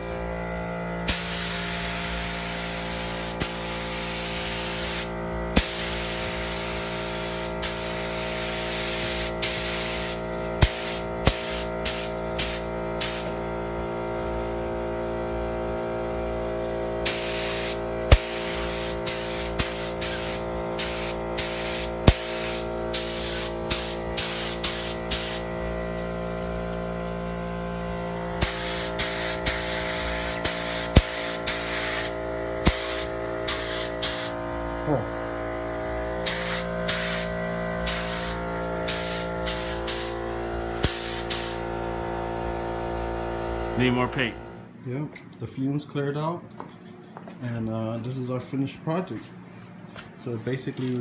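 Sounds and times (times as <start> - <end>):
paint spray gun hissing: 1.1 - 13.4, 17.0 - 25.5, 28.4 - 34.4, 36.2 - 40.2, 40.8 - 41.7.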